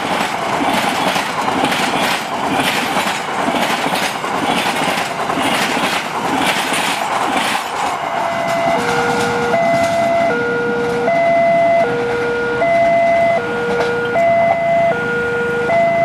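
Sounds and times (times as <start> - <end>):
passing train rumble: 0.0 - 16.0
level crossing two-tone alarm: 8.2 - 16.0.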